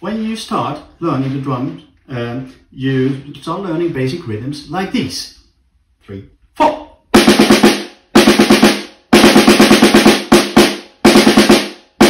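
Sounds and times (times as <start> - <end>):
snare drum struck with sticks: 7.2 - 12.0.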